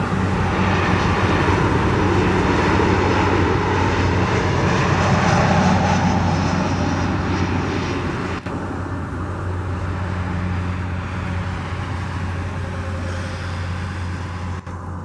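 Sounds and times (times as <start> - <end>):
jet airliner engines landing: 0.0 - 15.0.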